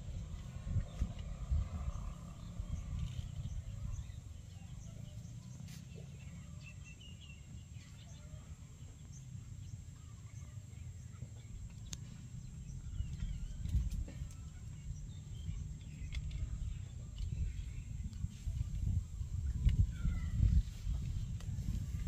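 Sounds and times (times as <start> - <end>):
wind rumbling on microphone: 0.0 - 5.3, 11.5 - 22.0.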